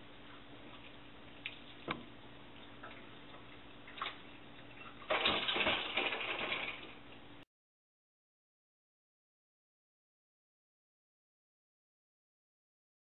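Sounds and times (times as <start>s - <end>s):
splashing and clatter in metal sink: 2.6s - 7.1s.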